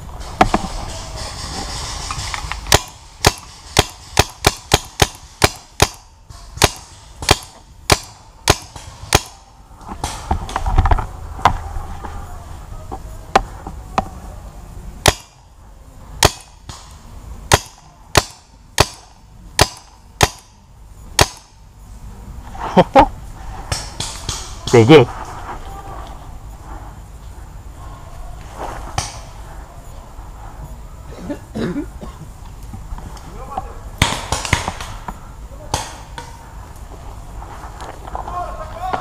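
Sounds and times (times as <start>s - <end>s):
paintball marker shots: 2.0s - 9.4s, 34.0s - 35.1s.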